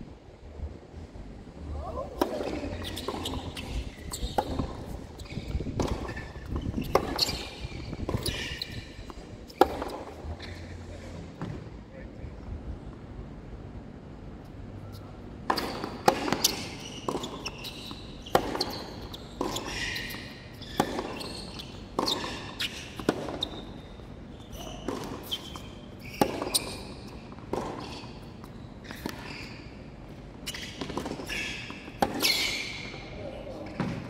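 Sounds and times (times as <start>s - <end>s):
tennis balls struck by racquets: 2.1s - 10.6s, 15.4s - 23.6s, 24.8s - 28.4s
shoe squeaks on court: 2.3s - 10.6s, 14.8s - 34.0s.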